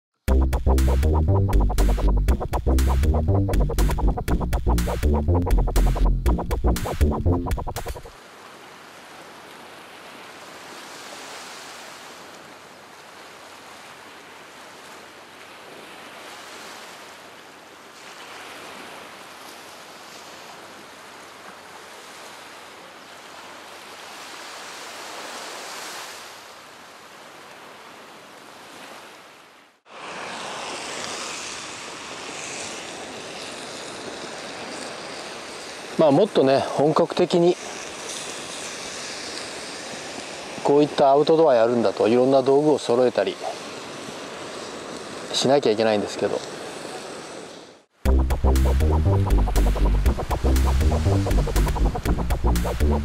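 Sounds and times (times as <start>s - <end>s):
surf washing on beach: 7.7s - 48.0s.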